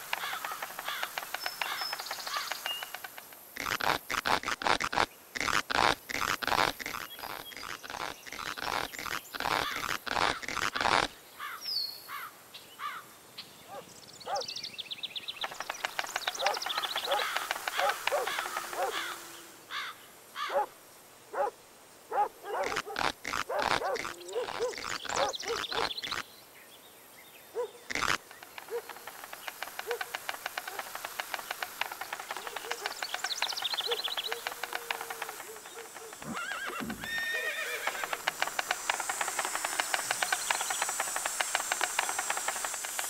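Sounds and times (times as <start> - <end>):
rapid clicking: 0.0 - 11.1, 15.4 - 19.2, 27.9 - 43.0
squeaky whinny-like calls: 16.0 - 20.7, 22.5 - 26.2, 31.8 - 42.8.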